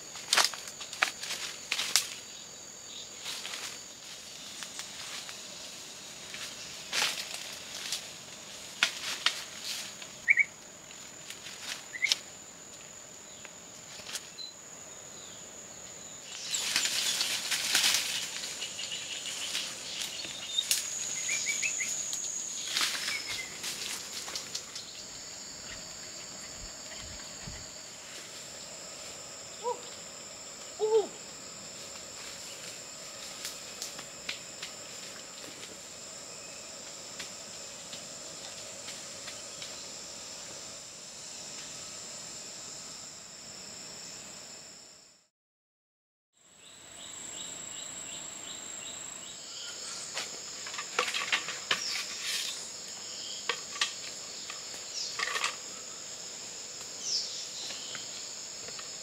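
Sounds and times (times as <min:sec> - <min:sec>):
high drone of insects: 0:00.0 - 0:45.3, 0:46.4 - 0:59.0
bird-like chirps: 0:10.2 - 0:10.5
footsteps rustling through dry leaves: 0:16.4 - 0:20.2, 0:22.6 - 0:24.8.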